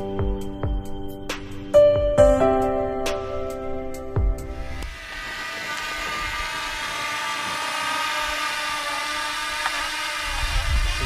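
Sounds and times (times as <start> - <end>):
background music: 0.0 - 4.9
steady high whine: 3.6 - 11.0.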